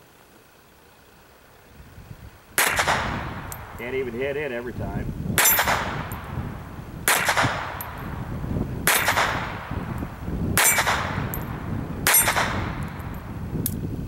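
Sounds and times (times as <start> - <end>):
pistol shots: 2.6 - 4.2, 5.4 - 6.4, 7.0 - 8.1, 8.8 - 9.8, 10.6 - 13.2.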